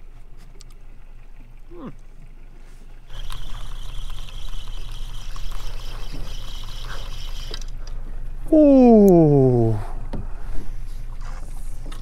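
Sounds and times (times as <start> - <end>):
fishing reel whining: 3.1 - 7.8.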